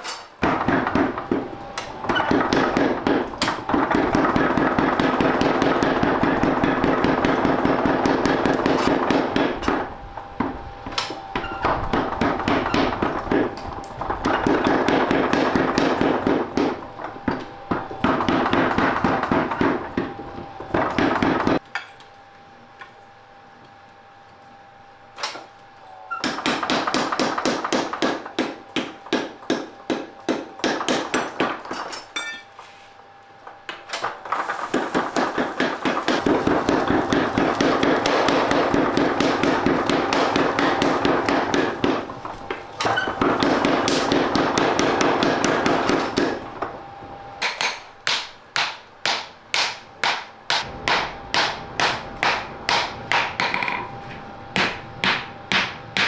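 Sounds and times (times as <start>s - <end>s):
hammer striking steel on anvil: 26.2s - 32.6s, 47.4s - 53.9s, 54.6s - 56.0s.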